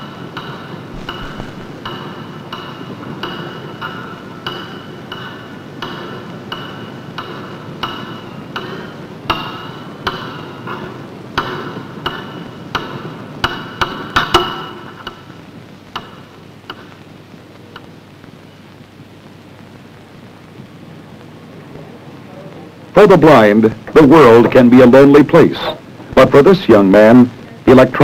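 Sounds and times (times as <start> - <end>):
footsteps on hard floor: 0.9 - 1.9.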